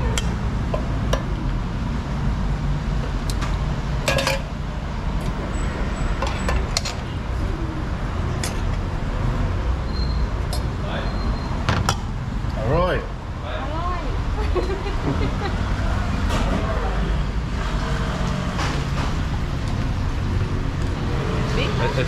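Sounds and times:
road traffic rumble: 0.0s - 22.0s.

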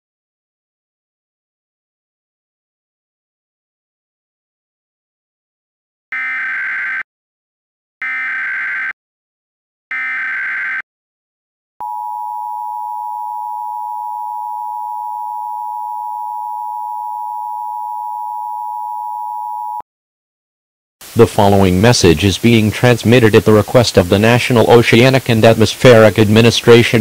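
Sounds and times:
screeching data bursts: 6.2s - 7.0s.

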